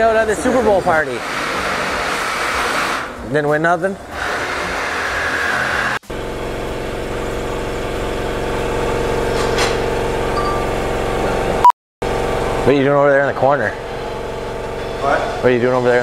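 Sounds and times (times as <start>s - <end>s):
steady motor drone: 4.0s - 16.0s.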